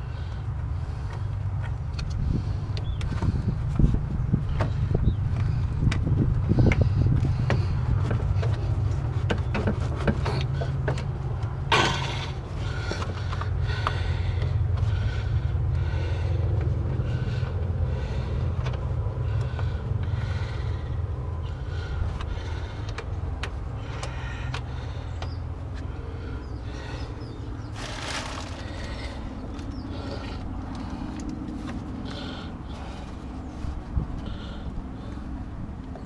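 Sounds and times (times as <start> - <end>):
steady low rumble: 0.0 - 36.0
rubber hose clicks and knocks: 4.5 - 12.2.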